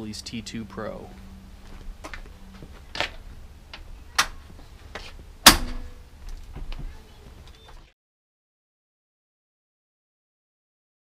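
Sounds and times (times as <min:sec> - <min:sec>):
metal clicks and clunks: 0:05.4 - 0:06.5.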